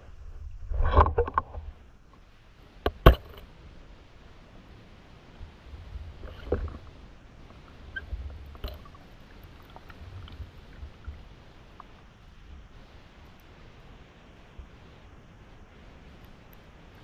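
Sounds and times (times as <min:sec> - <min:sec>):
underwater rumble: 0:00.0 - 0:17.0
small clicks and knocks: 0:02.8 - 0:03.5.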